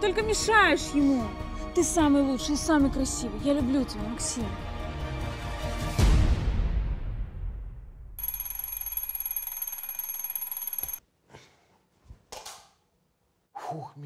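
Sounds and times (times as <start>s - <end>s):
alarm clock ringing: 8.2s - 11.0s.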